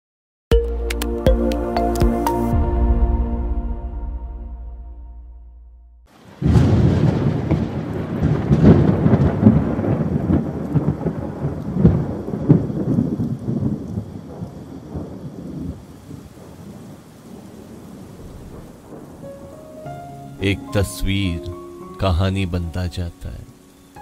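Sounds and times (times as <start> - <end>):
thunder cracking and rolling: 6.1 - 19.6
steady rain: 6.1 - 24.0.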